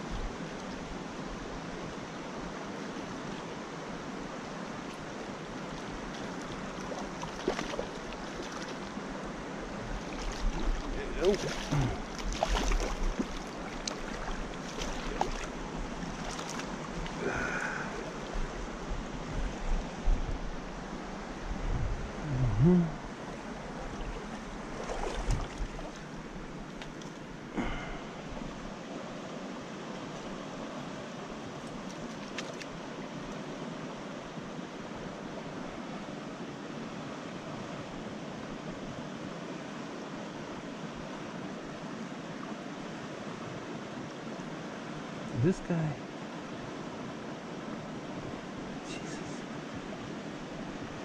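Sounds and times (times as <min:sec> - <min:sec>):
water rushing over stones: 0:00.0 - 0:19.2, 0:22.8 - 0:34.0.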